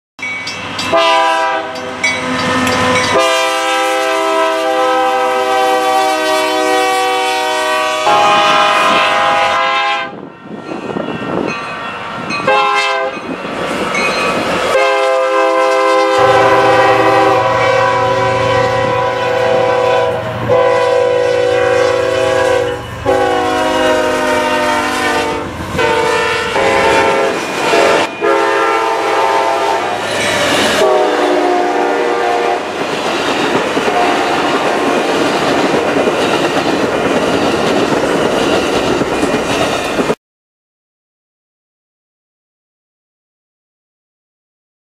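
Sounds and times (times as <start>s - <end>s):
diesel locomotive air horns: 0.9s - 10.2s, 12.4s - 13.2s, 14.7s - 32.8s, 33.8s - 35.1s
train wheels clattering over rail joints: 32.8s - 40.2s.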